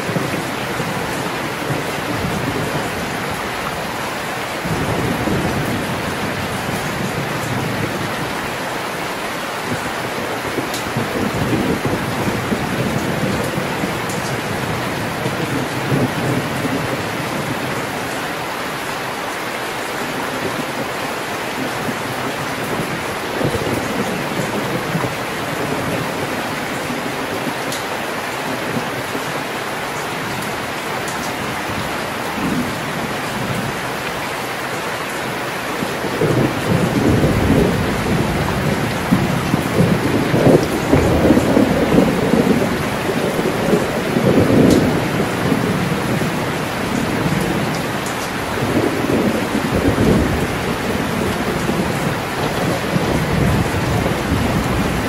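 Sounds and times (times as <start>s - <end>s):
thunder rumble: 0.0s - 8.6s, 9.6s - 18.1s, 21.6s - 27.6s, 35.8s - 55.0s
heavy rain pouring: 0.0s - 55.0s.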